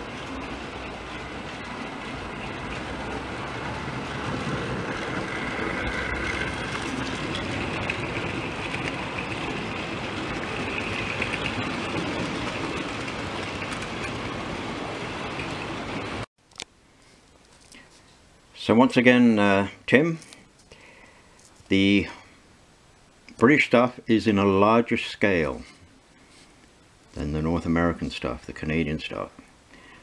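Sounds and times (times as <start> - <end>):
train wheels rumbling on rail: 0.0 - 16.3
faint motor whine: 0.0 - 30.0.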